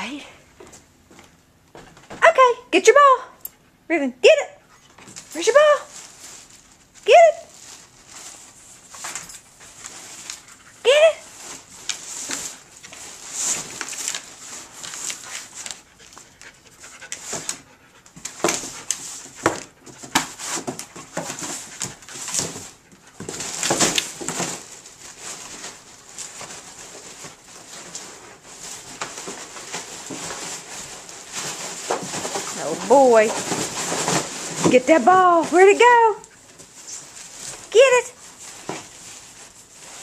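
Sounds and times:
cardboard rustling: 4.8 - 40.0
plastic packing crinkling: 5.0 - 40.0
dog panting: 14.8 - 23.2.

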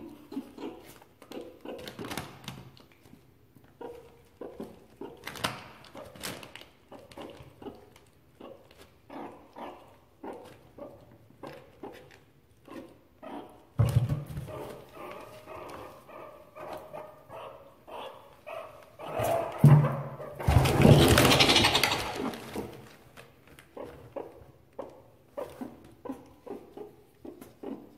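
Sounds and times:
meerkats chirping: 14.5 - 22.7.

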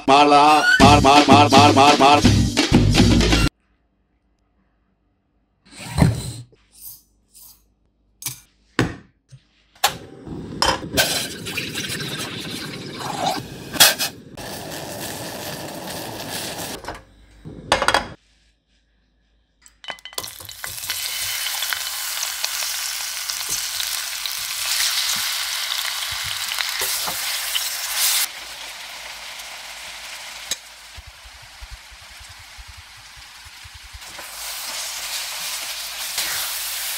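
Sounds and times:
fat sizzling in a pan: 11.0 - 16.8, 20.2 - 36.9.

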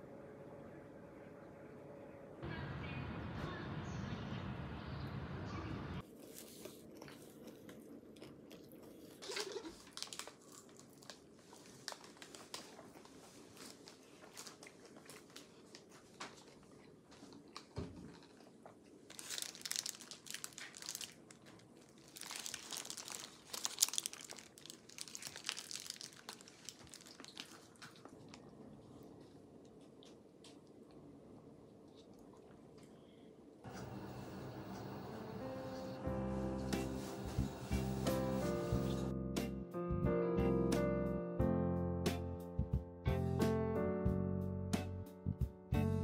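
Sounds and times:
paper wrapper crinkling: 9.1 - 16.7, 17.3 - 28.7.

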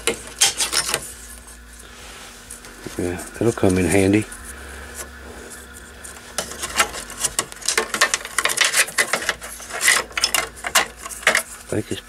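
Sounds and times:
wires rustling and rattling: 0.0 - 12.0.

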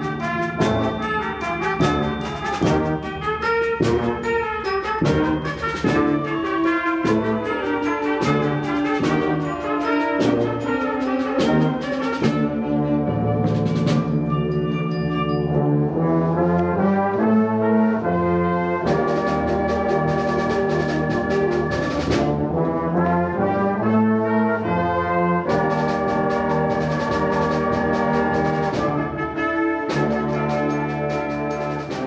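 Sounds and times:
quick percussion strokes: 0.0 - 12.7, 13.4 - 15.4, 19.0 - 22.4, 25.6 - 32.0
concert band playing: 0.0 - 32.0.

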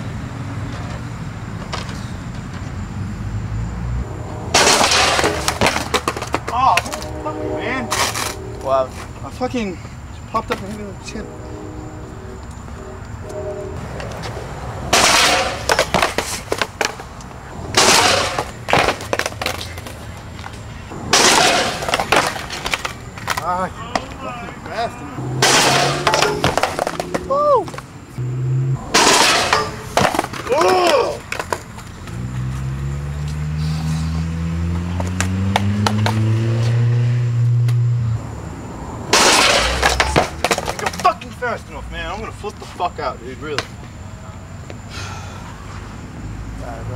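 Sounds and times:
skateboard slamming on concrete: 4.6 - 7.0, 14.9 - 17.0, 17.7 - 19.9, 21.0 - 24.1, 39.1 - 41.1
skateboard clattering on steps: 4.7 - 7.0, 15.0 - 17.1, 17.8 - 20.6, 21.2 - 24.2, 29.1 - 32.1, 39.2 - 41.4.

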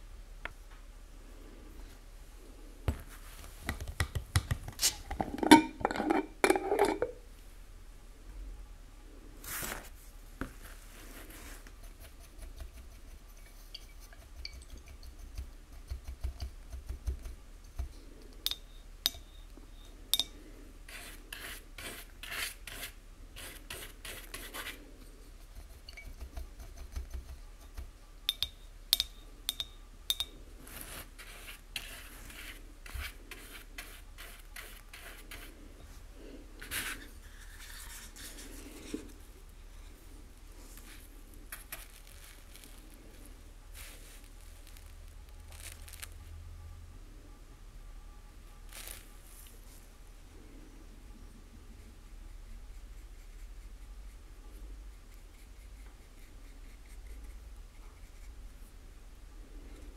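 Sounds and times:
paintbrush bristles scratching: 10.6 - 18.0, 20.9 - 27.9, 30.6 - 35.7, 36.6 - 39.3, 40.6 - 46.2, 48.7 - 49.7
brush rinsed in water: 12.0 - 17.2
brush clinking against glass jar: 13.7 - 15.1, 18.4 - 19.4, 20.1 - 20.4, 25.8 - 26.2, 28.3 - 30.4.

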